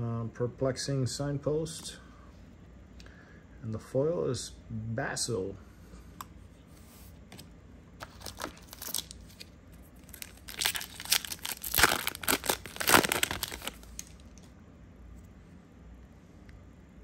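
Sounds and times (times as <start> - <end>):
foil wrapper tearing: 8.0 - 14.4.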